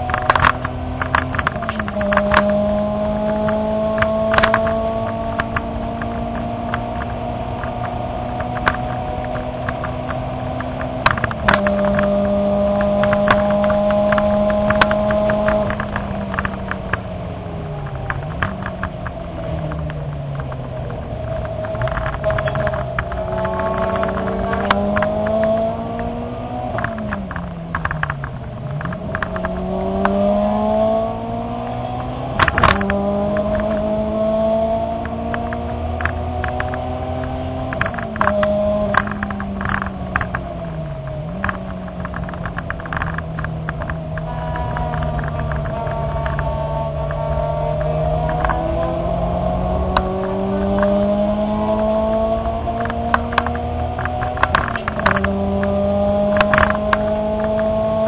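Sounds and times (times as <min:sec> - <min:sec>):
clicks and rattles: 0:00.0 - 0:02.5, 0:17.8 - 0:30.3, 0:32.0 - 0:58.0
car engine accelerating: 0:00.0 - 0:58.0.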